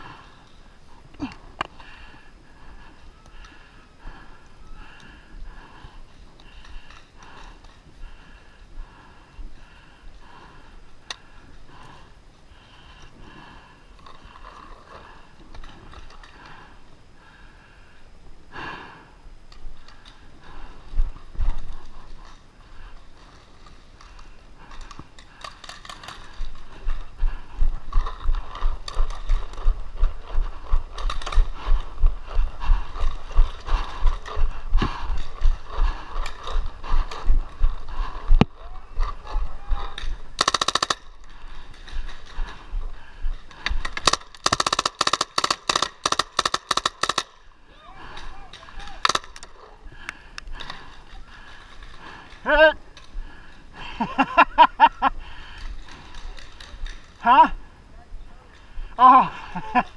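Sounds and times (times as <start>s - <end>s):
steady low thumps: 26.4s - 40.4s
paintball markers firing: 38.4s - 42.4s, 43.5s - 47.4s, 48.1s - 49.7s.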